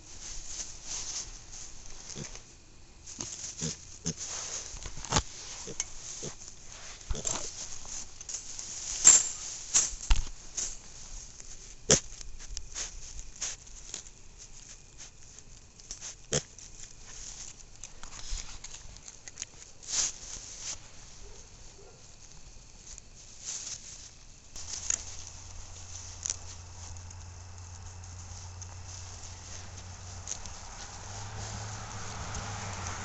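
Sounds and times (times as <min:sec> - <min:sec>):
pig sniffing and snuffling: 0:00.0 - 0:09.7, 0:10.9 - 0:33.0
pig snorting: 0:03.2 - 0:04.5.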